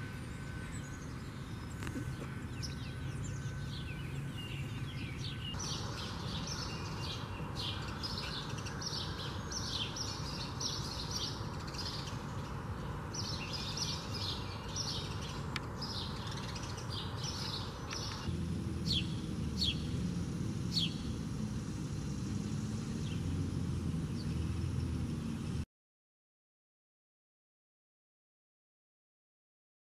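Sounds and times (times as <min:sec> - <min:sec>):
low background rumble: 0:00.0 - 0:25.6
sparrows chirping: 0:00.0 - 0:25.6.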